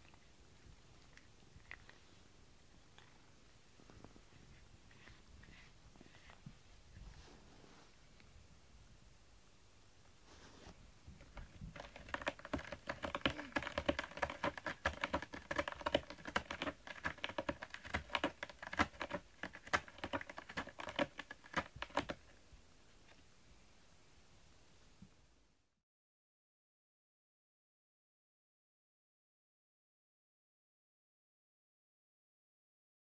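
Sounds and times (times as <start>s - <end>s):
cat scratching cardboard: 10.3s - 22.4s.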